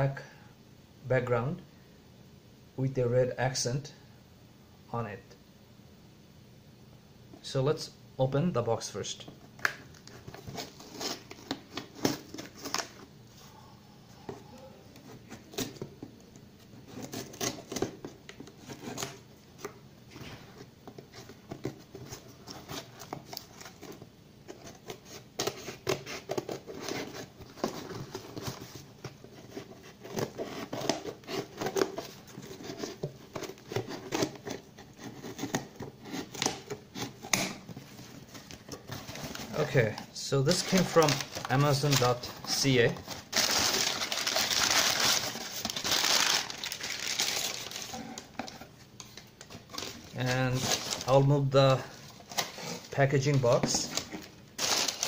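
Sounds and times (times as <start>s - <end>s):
cardboard box being handled: 24.6s - 48.6s.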